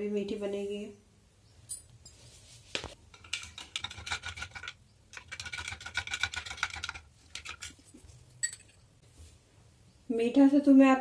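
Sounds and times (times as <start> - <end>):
spoon clinking against glass: 8.4 - 8.8.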